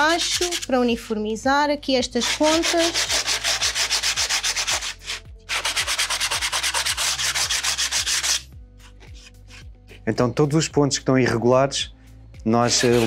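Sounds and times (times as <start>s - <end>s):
sandpaper rasping on wood: 0.0s - 0.8s, 2.2s - 9.7s, 12.6s - 13.0s.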